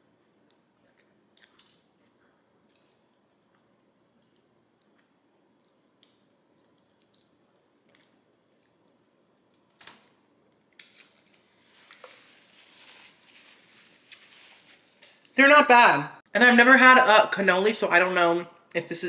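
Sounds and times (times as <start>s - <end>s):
paper napkin crinkling: 11.6s - 15.2s.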